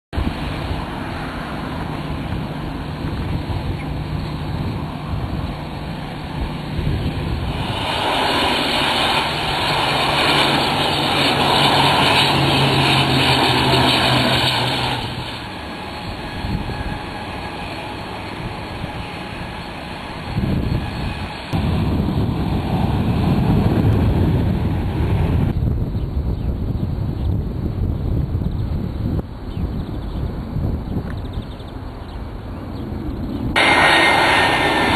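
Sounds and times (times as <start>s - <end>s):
airliner landing drone: 0.2s - 34.9s
jet engines on runway: 0.2s - 34.9s.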